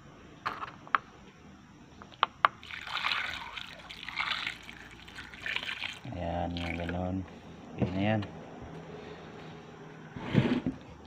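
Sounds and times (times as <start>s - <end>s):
water pouring into metal pot: 2.6s - 7.0s.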